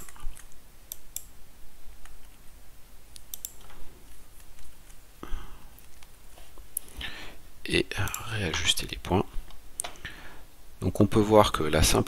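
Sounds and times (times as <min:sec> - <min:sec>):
keyboard typing: 0:00.0 - 0:01.3, 0:03.2 - 0:05.0
mouse clicks: 0:00.0 - 0:01.3, 0:03.1 - 0:05.0.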